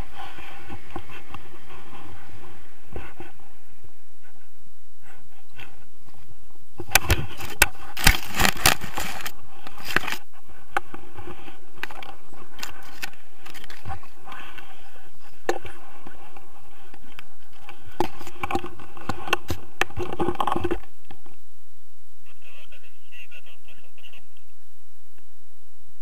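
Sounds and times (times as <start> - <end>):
camera scraping and rustling: 0.0 - 3.6, 4.2 - 21.4
steady noise: 0.0 - 26.0.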